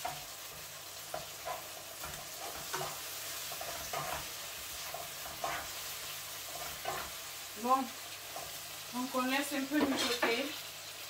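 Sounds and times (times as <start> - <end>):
spatula scraping and tapping pan: 0.0 - 7.2, 9.6 - 10.6
vegetables sizzling in frying pan: 0.0 - 11.0.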